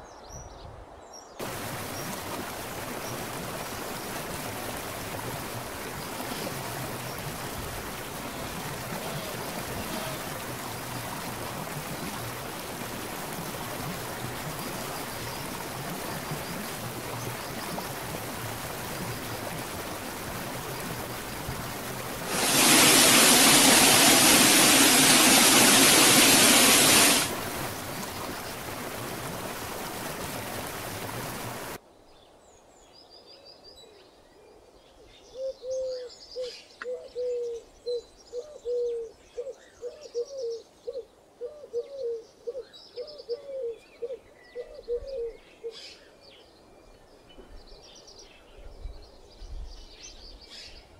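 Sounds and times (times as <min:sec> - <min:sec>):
stream rushing over boulders: 0:01.4 - 0:31.8.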